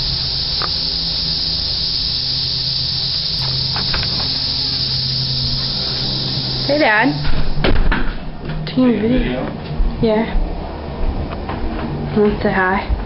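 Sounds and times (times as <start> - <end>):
cicadas buzzing: 0.0 - 13.0.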